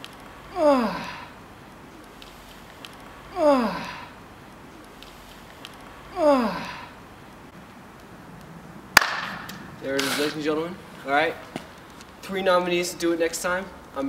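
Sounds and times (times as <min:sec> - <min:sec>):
man grunting with effort: 0:00.5 - 0:01.4, 0:03.3 - 0:04.2, 0:06.1 - 0:07.0.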